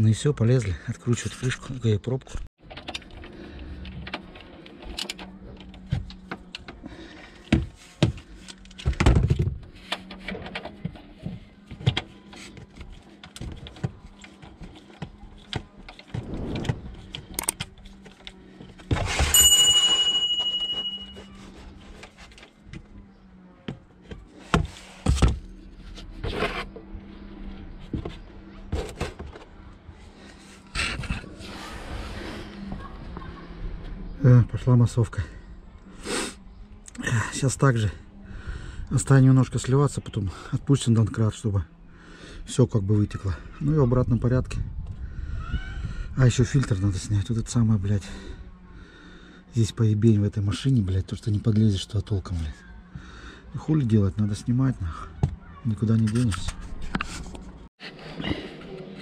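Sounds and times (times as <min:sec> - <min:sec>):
notification chime: 0:19.4 - 0:21.2.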